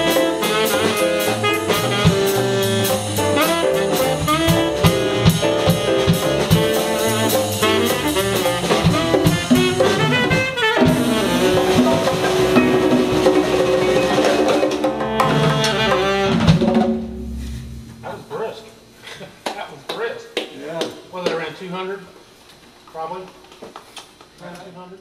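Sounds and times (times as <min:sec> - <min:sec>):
tenor saxophone: 0:00.0 - 0:13.3, 0:14.8 - 0:16.6
jazz combo playing: 0:00.0 - 0:19.0.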